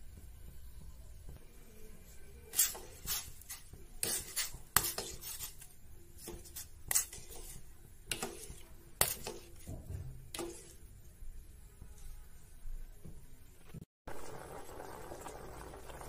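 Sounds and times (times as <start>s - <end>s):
metal ladle scraping a pot: 2.5s - 10.9s.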